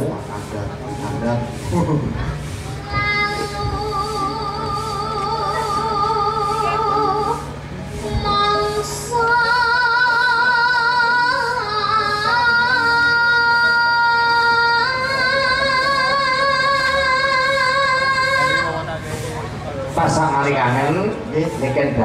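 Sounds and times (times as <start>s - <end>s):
woman singing with vibrato: 2.6s - 19.0s.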